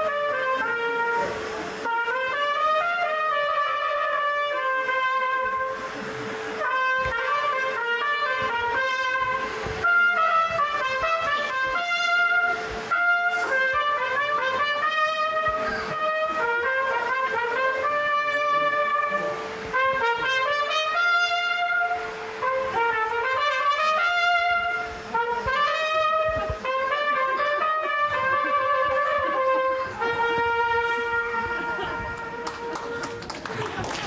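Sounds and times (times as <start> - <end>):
trumpet melody: 0.0 - 33.7
steady drone: 0.0 - 33.8.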